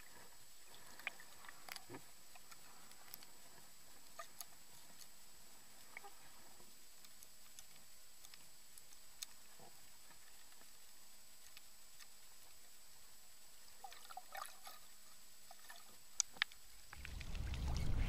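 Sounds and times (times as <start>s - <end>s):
small underwater clicks: 0.0s - 12.8s, 13.7s - 18.0s.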